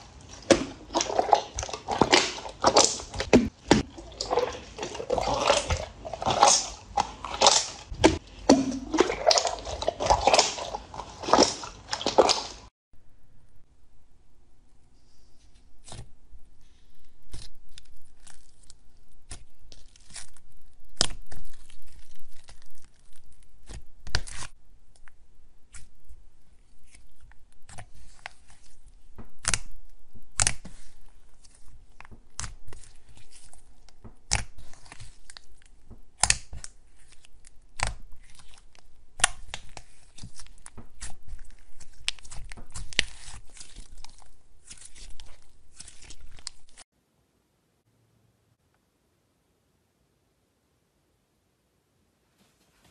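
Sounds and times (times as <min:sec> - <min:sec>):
slime clicking and popping: 0:29.4 - 0:29.7, 0:36.1 - 0:36.8.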